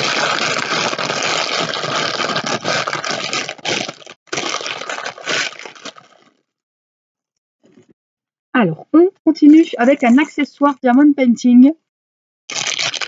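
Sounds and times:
plastic bag crinkling: 0.0s - 6.4s, 12.5s - 13.0s.

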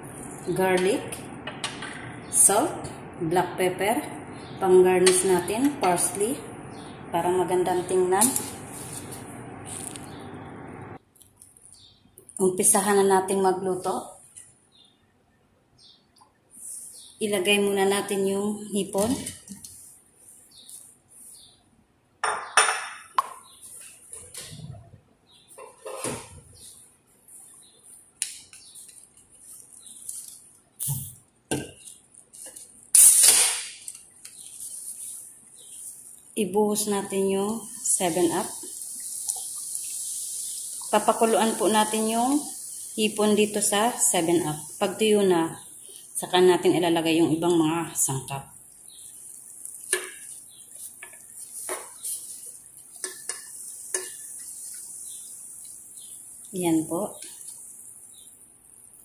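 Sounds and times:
sharp hissing crack: 32.6s - 36.2s, 37.7s - 45.0s, 48.6s - 59.0s
shrimp clattering in frying pan: 49.0s - 56.5s.

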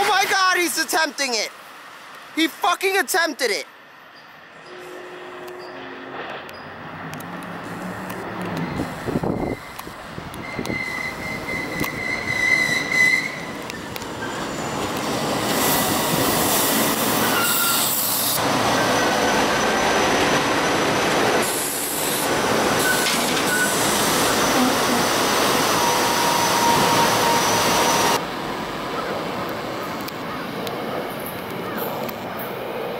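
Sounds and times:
train wheels on rail: 4.1s - 32.9s
high wheel squeal: 7.9s - 14.8s, 17.1s - 20.9s, 21.5s - 28.2s.

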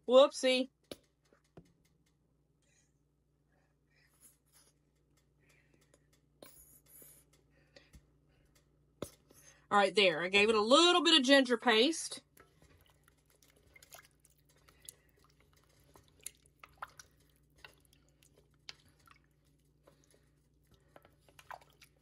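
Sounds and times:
spoon stirring thick stew: 12.2s - 22.0s.

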